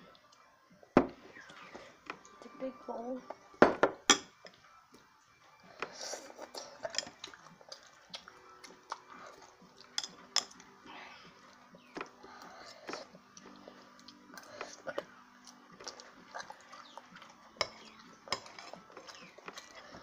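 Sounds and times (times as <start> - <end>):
soft chewing: 4.4 - 20.0
spoon scraping ceramic bowl: 17.6 - 19.8.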